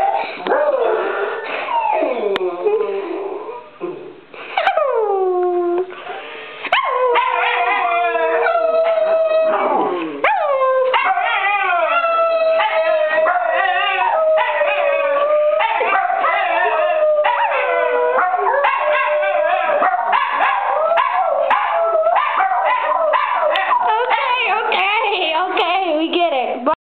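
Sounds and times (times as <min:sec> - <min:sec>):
small dogs howling and barking: 0:06.7 - 0:24.8.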